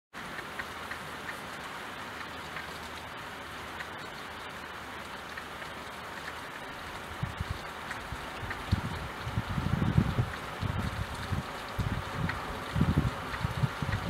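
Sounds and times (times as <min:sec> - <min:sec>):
drips ticking: 0:00.2 - 0:14.0
rain pattering on a window: 0:00.2 - 0:14.0
low rumbling thumps: 0:07.2 - 0:14.0.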